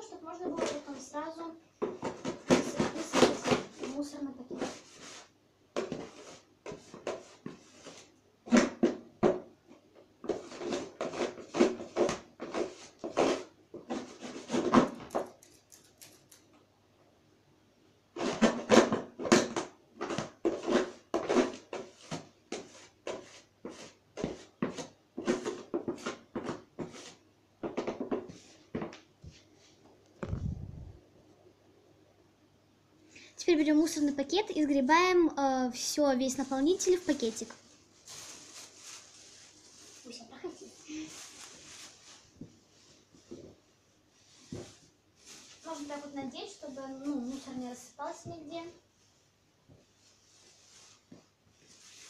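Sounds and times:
scoop scraping plastic tray: 1.8s - 9.0s, 10.2s - 15.2s, 18.2s - 28.8s.

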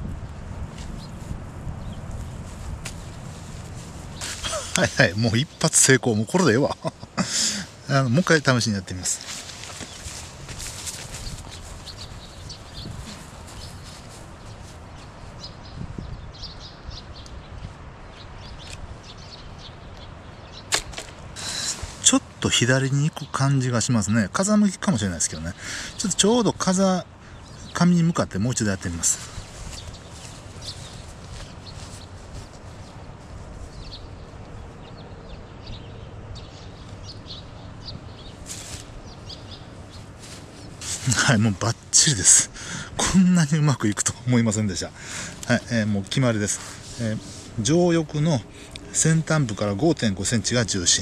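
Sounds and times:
wind rumbling on microphone: 0.0s - 7.2s, 8.9s - 22.4s, 28.8s - 41.9s
small birds chirping: 0.0s - 51.0s.

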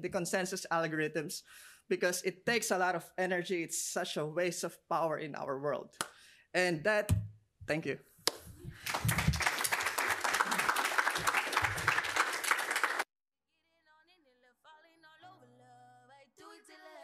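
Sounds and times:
audience applauding: 8.7s - 13.1s.

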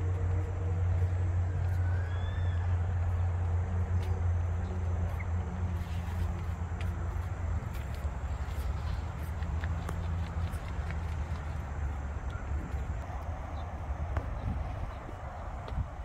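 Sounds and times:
distant city traffic rumble: 0.0s - 16.0s
faint rising chirp: 1.4s - 3.3s.

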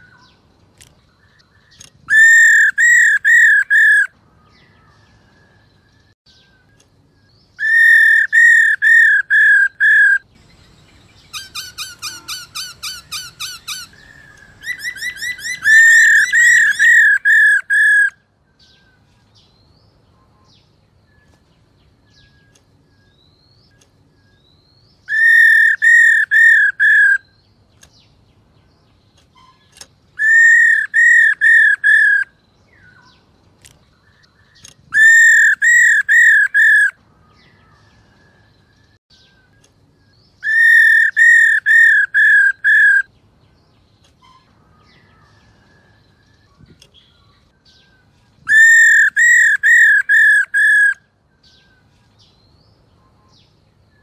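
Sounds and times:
bird whistled calls: 1.8s - 4.1s, 7.6s - 18.2s, 25.0s - 27.4s, 29.4s - 33.0s, 34.9s - 37.0s, 40.4s - 43.1s, 48.5s - 51.6s.

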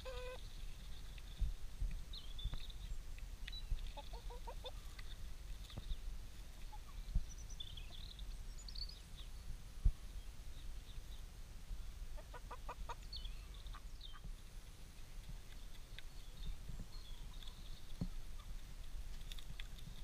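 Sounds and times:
chickens clucking: 0.0s - 0.4s, 3.8s - 5.8s, 6.5s - 7.2s, 12.2s - 14.3s.

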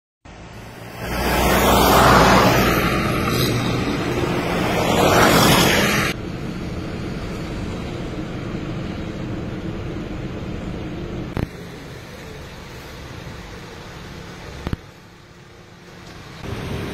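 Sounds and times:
street noise with low hum: 0.3s - 16.9s
vehicles passing: 0.3s - 16.9s.

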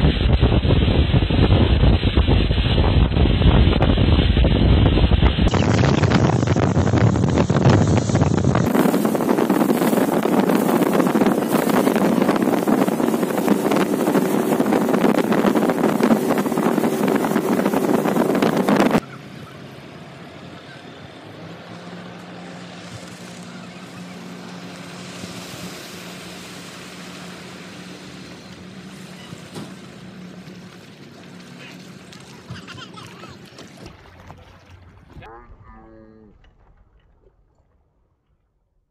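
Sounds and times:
wind buffeting the microphone: 0.0s - 19.6s
hull and wake rushing: 0.0s - 35.3s
motorboat engine hum: 0.0s - 35.7s.

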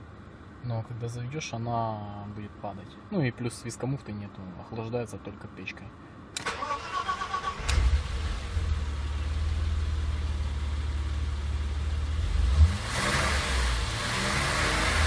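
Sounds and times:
car engine idling: 6.2s - 12.8s
engine starter cranking: 6.4s - 8.2s.

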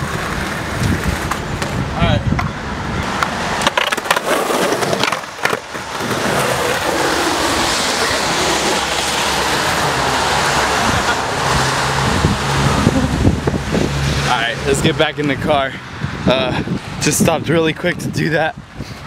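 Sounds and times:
skateboard wheels rolling: 0.0s - 13.6s
low engine hum: 8.2s - 14.7s.

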